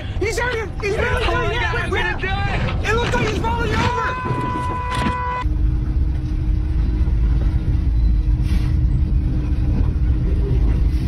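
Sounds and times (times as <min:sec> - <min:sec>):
diesel engine rumbling: 0:00.0 - 0:11.0
steady drone: 0:04.1 - 0:11.0.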